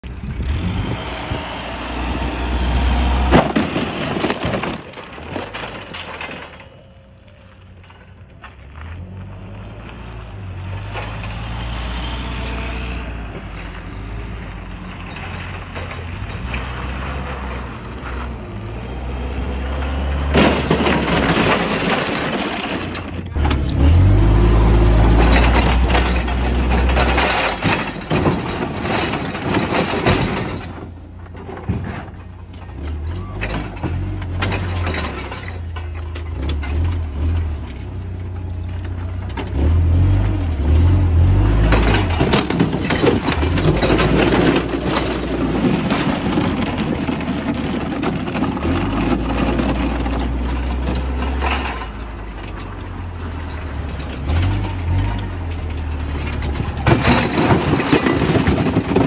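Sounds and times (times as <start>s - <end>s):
forklift engine revving: 0.0s - 4.0s, 9.0s - 30.6s, 36.0s - 59.0s
truck hood cracking and crunching: 3.0s - 6.9s, 20.0s - 23.8s, 24.5s - 59.0s.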